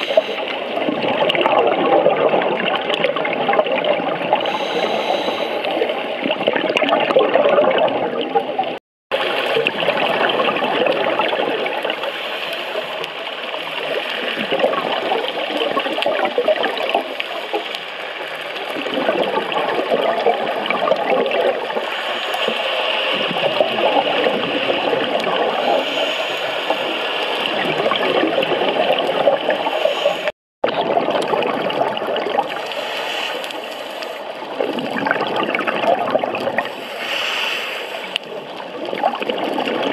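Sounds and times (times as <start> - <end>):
underwater crackling and bubbling: 0.0 - 39.9.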